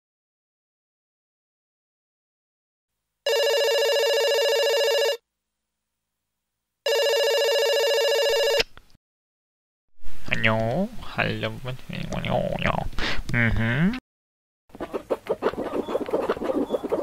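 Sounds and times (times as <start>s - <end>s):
telephone ringing: 3.3s - 5.2s, 6.9s - 8.6s.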